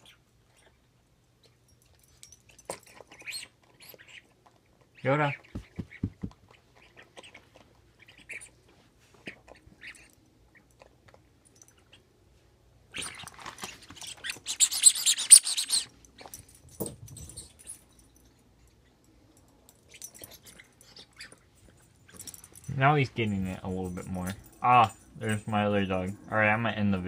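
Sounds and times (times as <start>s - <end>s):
dog chewing toy: 12.9s - 16.5s
toy squeaking: 14.0s - 15.9s.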